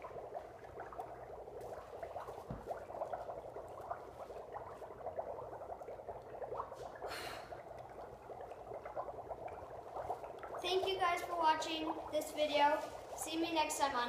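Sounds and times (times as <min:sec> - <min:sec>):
dry ice bubbling in water: 0:00.0 - 0:14.0
breathy hiss: 0:06.8 - 0:07.7.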